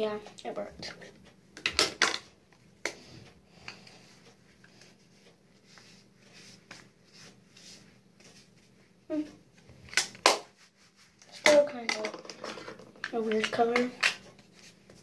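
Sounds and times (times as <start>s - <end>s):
brush swishing on skin: 4.0s - 9.0s, 10.5s - 11.4s.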